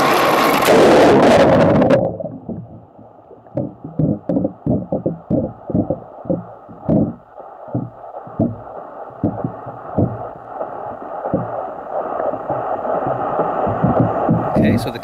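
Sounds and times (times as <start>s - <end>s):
muffled water sloshing and knocking: 0.0s - 15.0s.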